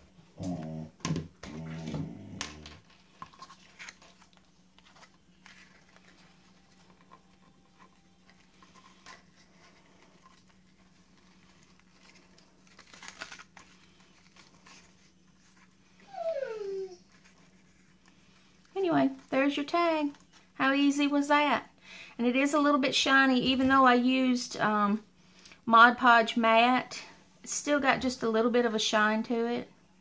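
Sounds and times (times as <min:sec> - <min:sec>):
ribbon and paper tag rustling: 0:02.9 - 0:16.0.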